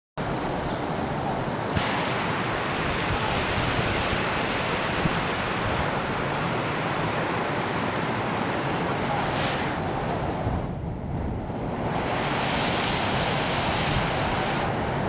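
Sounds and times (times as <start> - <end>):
floodwater rushing over wall: 0.2 - 10.7, 11.3 - 15.0.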